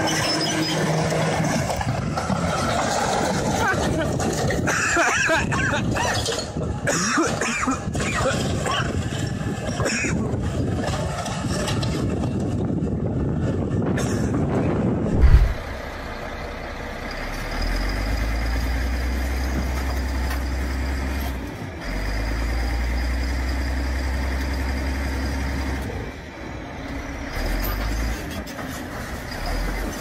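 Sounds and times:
bulldozer diesel engine droning: 0.0s - 6.9s, 7.8s - 30.0s
loud thump: 15.1s - 15.6s.

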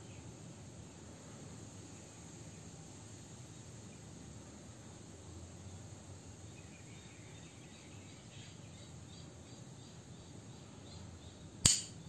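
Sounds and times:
faint insect chirping: 0.0s - 12.0s
metallic lighter click: 11.7s - 12.0s.

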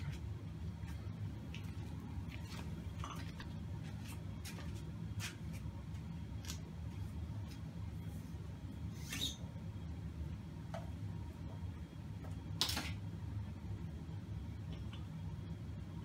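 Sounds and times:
steady low hum: 0.0s - 16.0s
flip-flop footsteps on concrete: 3.8s - 6.1s.

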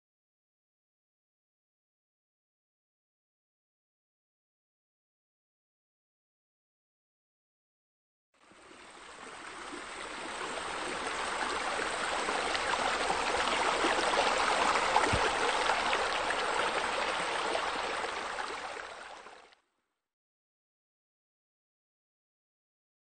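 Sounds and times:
water splashing into pool: 12.6s - 18.0s.

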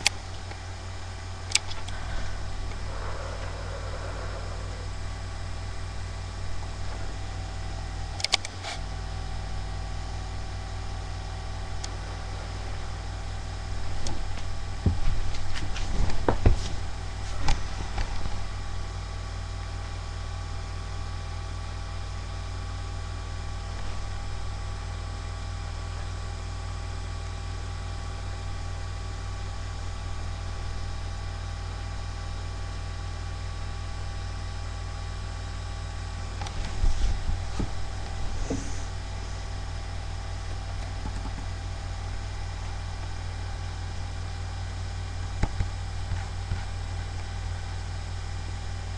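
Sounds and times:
electrical hum and hiss: 0.0s - 48.9s
knocks and rustles: 13.9s - 18.4s, 36.4s - 39.0s.

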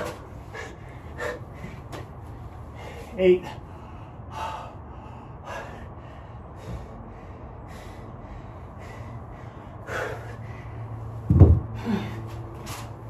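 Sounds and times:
man breathing hard: 0.0s - 12.5s
heavy thump: 11.2s - 11.9s.

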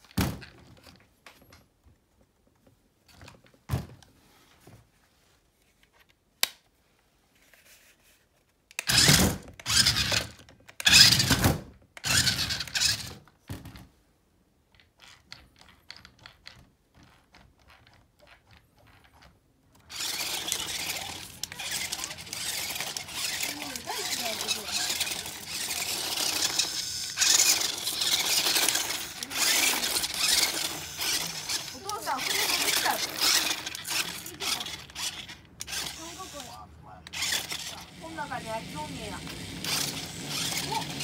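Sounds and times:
toy car electric motors whirring: 8.7s - 13.3s, 14.7s - 41.0s
toy car running in water: 8.9s - 11.2s, 12.0s - 13.1s, 19.9s - 36.5s, 37.1s - 41.0s.

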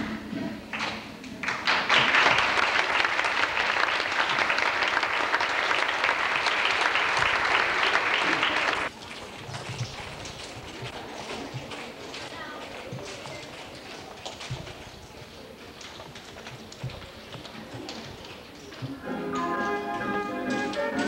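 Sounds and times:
audience applauding: 0.7s - 9.4s.

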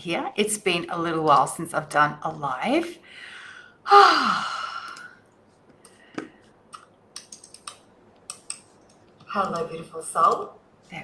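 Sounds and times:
woman sighing: 3.3s - 5.2s.

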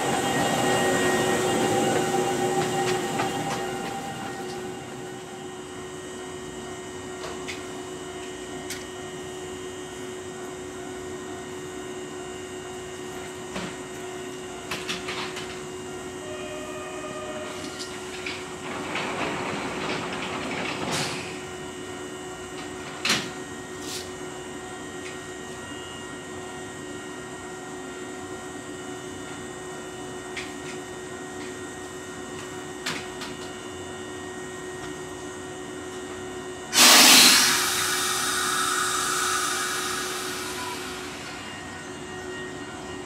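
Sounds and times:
electric train humming: 0.0s - 9.3s, 13.9s - 22.7s, 36.0s - 43.0s
compressed air release: 36.8s - 41.5s.

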